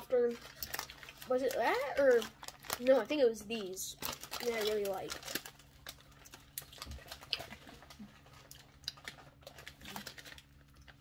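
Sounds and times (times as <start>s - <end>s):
plastic wrappers rustling: 0.0s - 11.0s.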